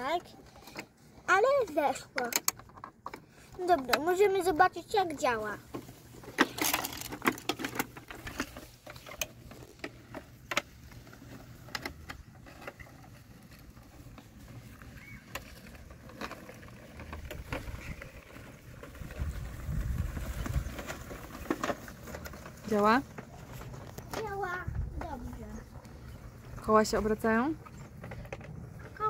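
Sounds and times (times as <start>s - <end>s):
plastic toy clicks and knocks: 1.7s - 4.6s, 5.7s - 10.7s.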